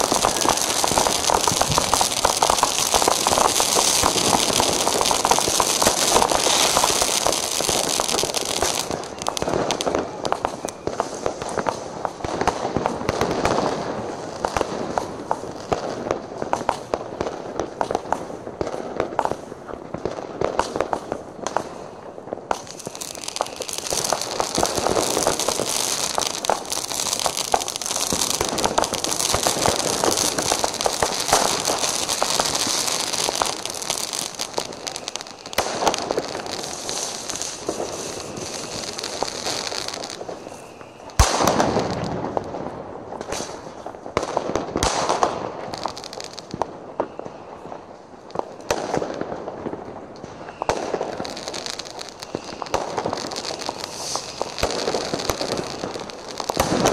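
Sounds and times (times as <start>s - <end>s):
fireworks bangs and pops: 0.0s - 56.9s
high hiss: 50.5s - 56.7s.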